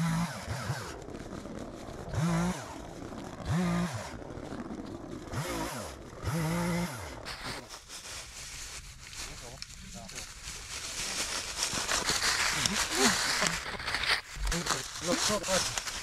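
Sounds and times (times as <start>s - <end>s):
chainsaw revving: 0.0s - 7.6s.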